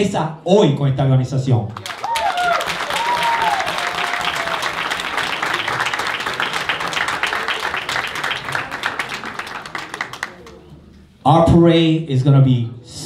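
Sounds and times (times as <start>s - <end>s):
audience applauding: 1.8s - 10.8s.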